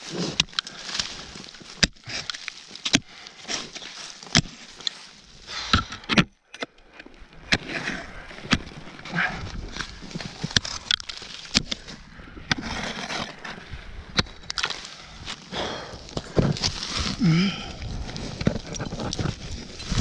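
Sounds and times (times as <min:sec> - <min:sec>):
scraping and rustling: 0:17.9 - 0:20.0.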